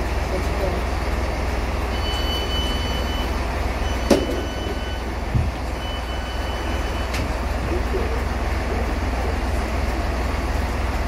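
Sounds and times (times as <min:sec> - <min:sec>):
train low rumble: 0:00.0 - 0:11.0
train door warning beeps: 0:01.9 - 0:05.1, 0:05.8 - 0:07.7.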